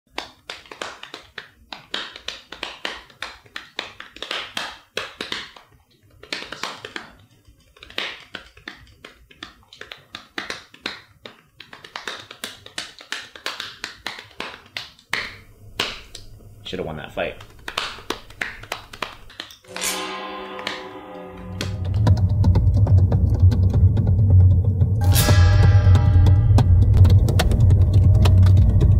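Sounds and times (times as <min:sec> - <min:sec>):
fingers tapping: 0:17.4 - 0:20.0.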